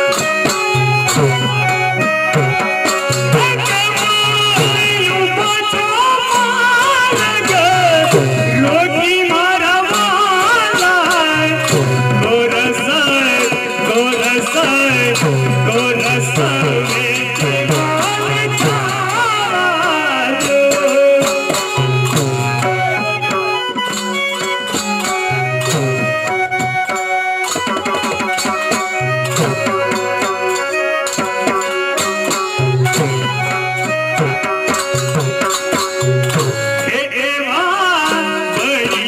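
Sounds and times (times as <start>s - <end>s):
hand drum rhythm: 0.0s - 37.0s
harmonium melody: 0.0s - 39.0s
man singing: 3.3s - 23.6s, 36.4s - 39.0s.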